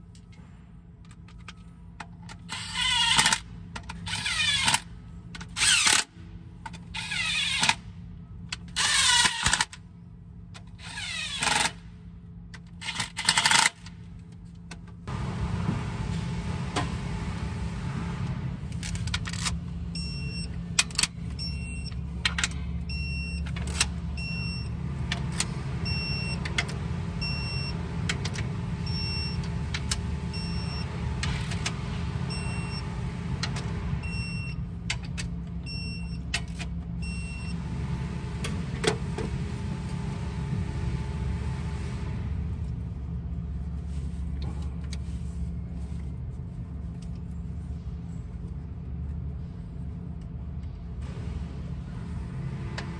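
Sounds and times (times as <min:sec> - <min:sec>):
low shop drone: 0:00.0 - 0:52.9
torque wrench beeping: 0:18.8 - 0:27.8, 0:28.8 - 0:34.7, 0:35.6 - 0:37.6.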